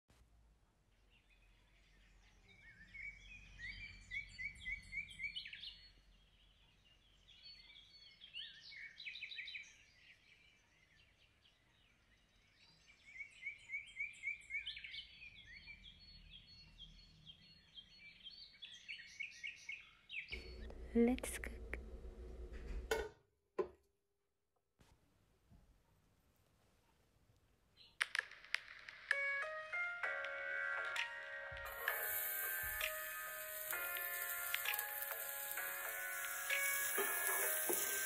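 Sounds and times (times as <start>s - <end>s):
birds chirping: 1.2s - 22.5s, 29.2s - 38.0s.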